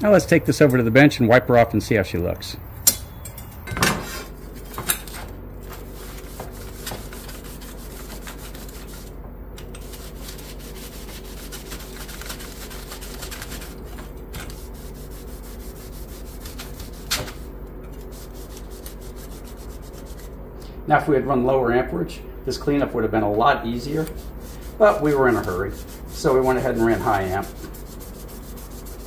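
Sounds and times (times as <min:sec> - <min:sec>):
rag scrubbing a steel plate: 0:05.6 - 0:09.1, 0:09.7 - 0:20.3, 0:23.3 - 0:29.0.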